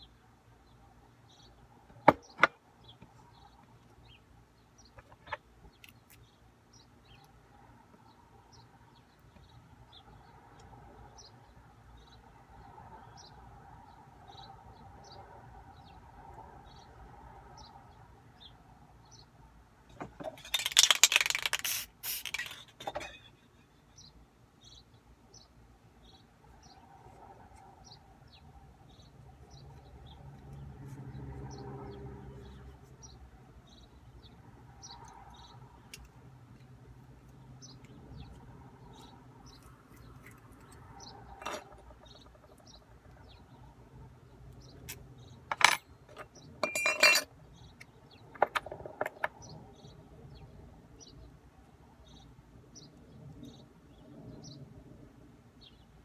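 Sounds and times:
metal parts clicking and clinking: 20.0 - 23.3, 41.4 - 42.6, 45.5 - 47.3.

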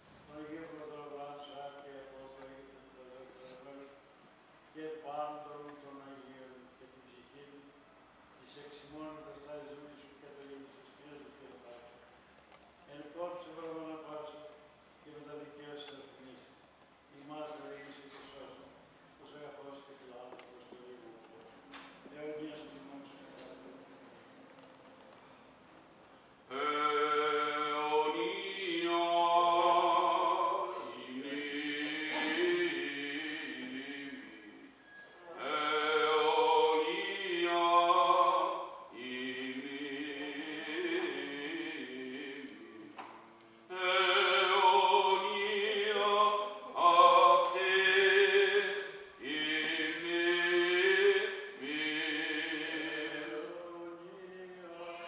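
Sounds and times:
man chanting: 26.5 - 34.7, 35.3 - 43.0, 43.7 - 55.0.

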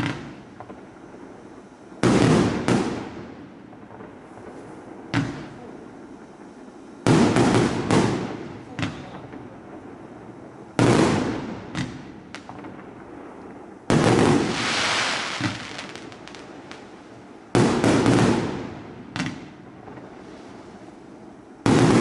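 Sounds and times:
small firework pops: 0.0 - 0.8, 5.1 - 5.6, 7.3 - 9.4, 11.7 - 12.8, 13.9 - 16.9, 19.1 - 20.1
loud firework bursts: 2.0 - 5.7, 7.0 - 10.0, 10.7 - 20.8, 21.6 - 22.0.

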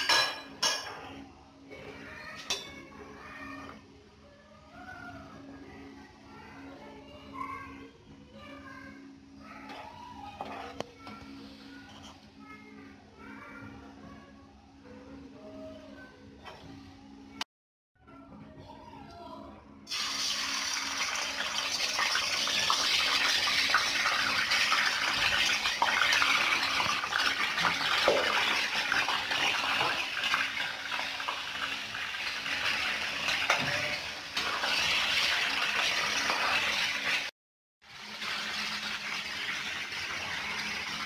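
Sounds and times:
chicken sizzling in hot oil: 19.9 - 41.0.

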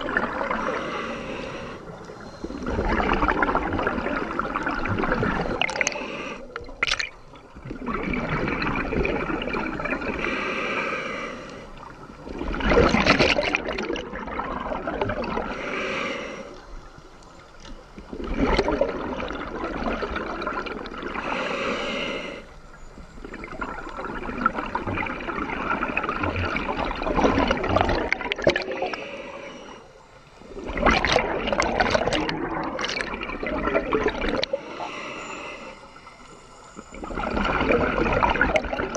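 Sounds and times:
diver breathing through regulator: 0.4 - 3.1, 5.5 - 6.6, 10.0 - 12.1, 15.4 - 17.0, 21.1 - 22.7, 28.5 - 31.6, 34.3 - 37.2
bubbling exhalation: 2.4 - 10.5, 12.2 - 15.6, 18.1 - 21.7, 23.2 - 29.1, 30.6 - 35.0, 37.0 - 38.9.

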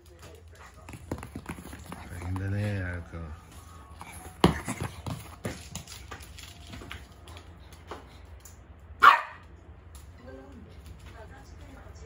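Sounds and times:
dog barking sharply: 9.0 - 9.4.

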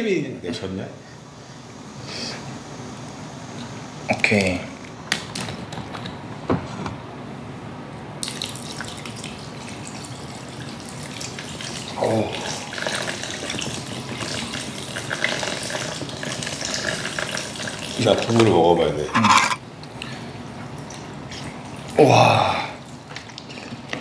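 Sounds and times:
water pouring into metal basins: 8.2 - 18.7.

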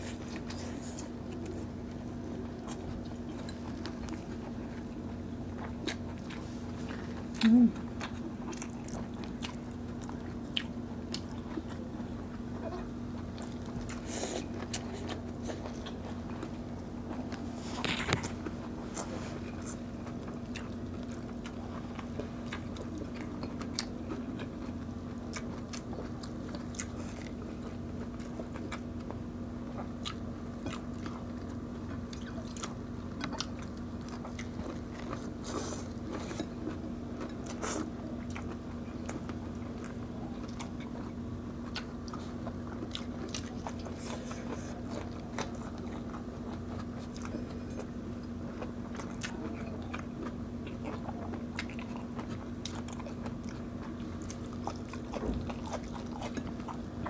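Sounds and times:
chewing food: 0.0 - 57.0.

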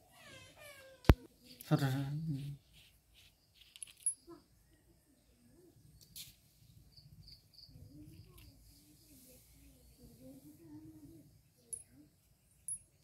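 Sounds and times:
faint bird chirps: 3.1 - 13.0.

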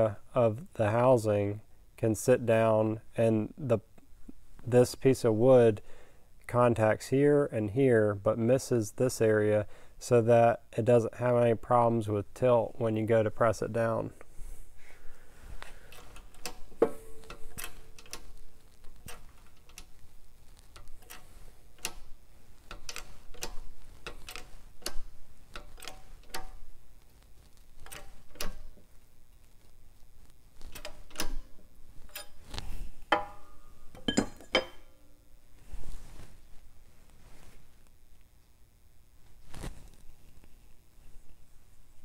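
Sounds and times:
metallic clanks with ringing: 33.1 - 35.0.

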